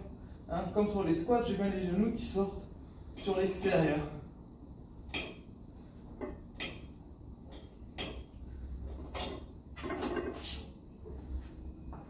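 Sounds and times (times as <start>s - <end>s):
weight plates clinking: 6.2s - 8.4s.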